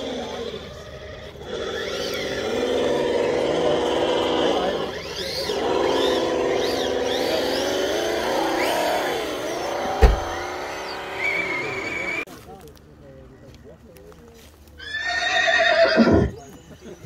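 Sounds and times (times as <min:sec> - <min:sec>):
electric motor and gearbox whining: 0:00.0 - 0:12.3
sharp thump: 0:10.0 - 0:10.5.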